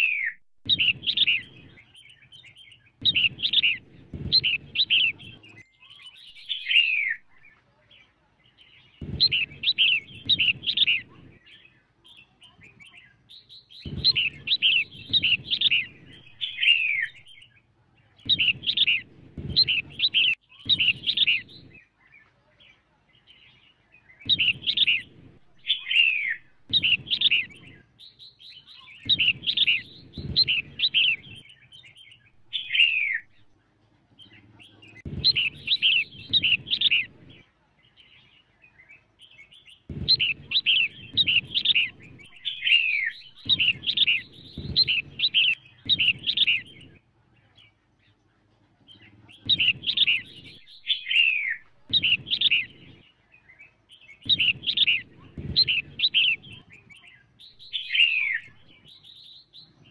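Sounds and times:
bird whistled calls: 0:00.0 - 0:07.4, 0:09.0 - 0:11.6, 0:13.6 - 0:17.5, 0:18.3 - 0:21.9, 0:24.3 - 0:27.9, 0:28.6 - 0:33.4, 0:35.0 - 0:37.2, 0:39.9 - 0:47.0, 0:49.5 - 0:53.0, 0:54.2 - 0:56.6, 0:57.4 - 0:59.3.

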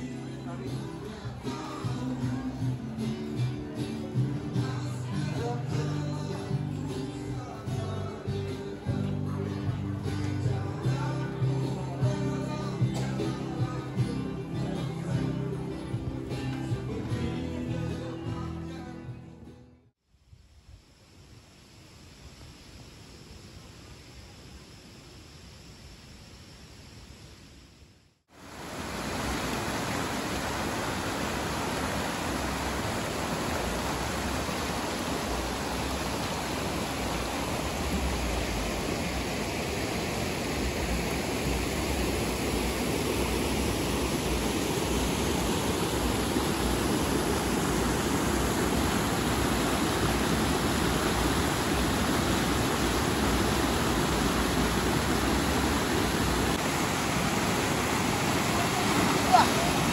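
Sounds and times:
river rushing: 0:28.3 - 0:59.9.

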